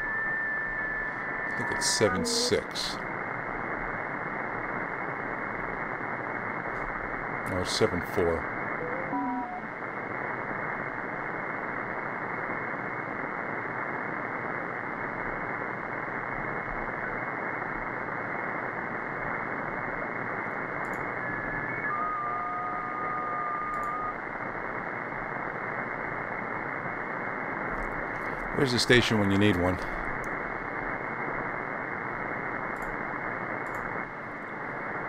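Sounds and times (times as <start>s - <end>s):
radio signal tones: 0.0s - 3.1s, 7.4s - 9.8s, 20.0s - 24.6s
radio band noise hiss: 0.0s - 35.0s.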